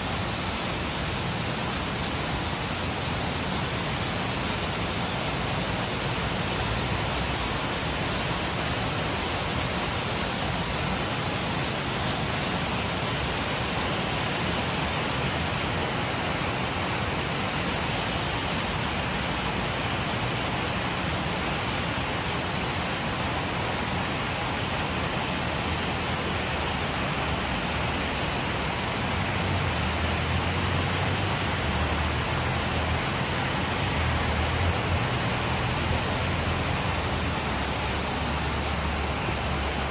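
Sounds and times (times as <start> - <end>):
heavy rain: 0.0 - 39.9.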